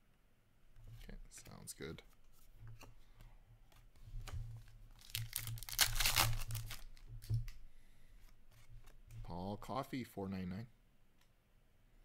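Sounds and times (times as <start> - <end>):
foil wrapper crinkling and tearing: 4.9 - 7.0.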